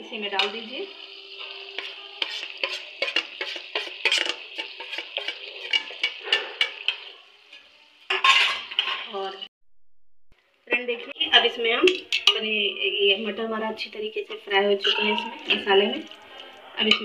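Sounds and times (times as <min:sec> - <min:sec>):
light frying sizzle: 0:00.0 - 0:09.5, 0:10.4 - 0:17.0
metal spoon scraping pan: 0:01.3 - 0:09.3, 0:11.9 - 0:12.6, 0:14.3 - 0:17.0.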